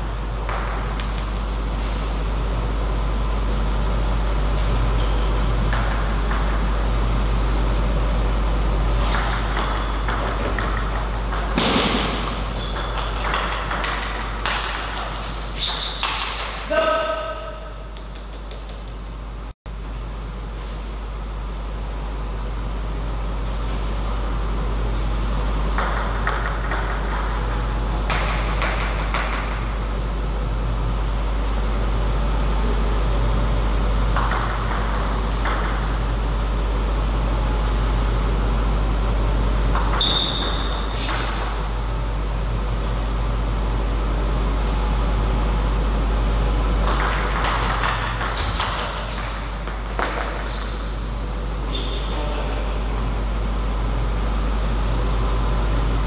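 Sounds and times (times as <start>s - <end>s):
loud steady low hum: 0.0s - 56.0s
table tennis ball pinging: 0.4s - 1.2s, 5.7s - 6.8s, 9.1s - 16.6s, 25.7s - 29.8s, 34.1s - 36.1s, 39.7s - 41.4s, 46.8s - 51.0s.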